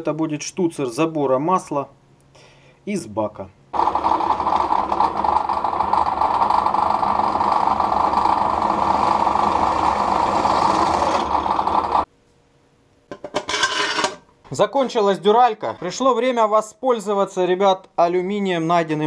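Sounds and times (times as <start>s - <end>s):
drill press motor whir: 3.8s - 12.1s.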